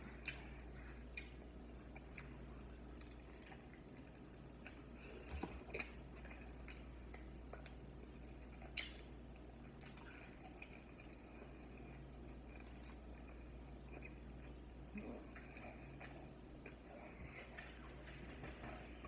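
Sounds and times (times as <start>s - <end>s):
person chewing: 0.0s - 17.1s
lip smacks: 0.2s - 11.1s.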